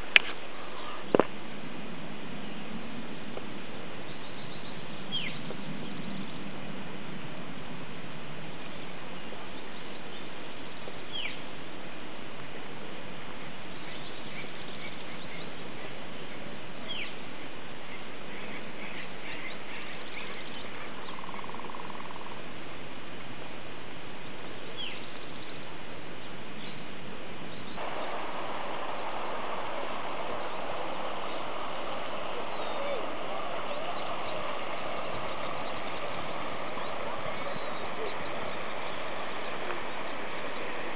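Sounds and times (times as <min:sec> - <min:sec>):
wild birds calling: 0:00.0 - 0:01.4, 0:03.9 - 0:06.8, 0:13.4 - 0:22.6, 0:24.2 - 0:40.9
steady outdoor hiss: 0:00.0 - 0:40.9.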